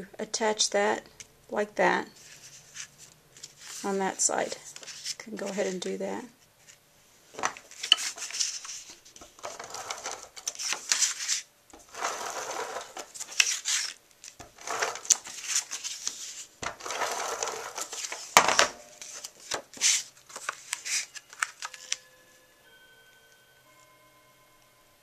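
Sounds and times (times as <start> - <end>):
paper rustling and crinkling: 2.2 - 5.8, 7.4 - 22.0.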